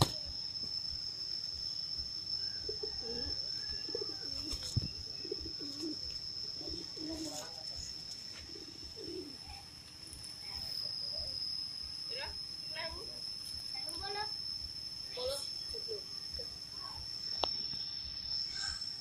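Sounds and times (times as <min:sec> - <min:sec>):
high-pitched whine: 0:00.0 - 0:19.0
pigeons cooing: 0:02.5 - 0:09.7.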